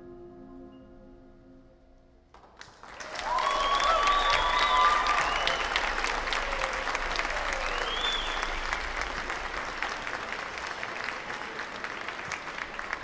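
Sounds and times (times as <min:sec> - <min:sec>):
audience clapping: 0:02.4 - 0:13.0
high call from crowd: 0:02.8 - 0:13.0.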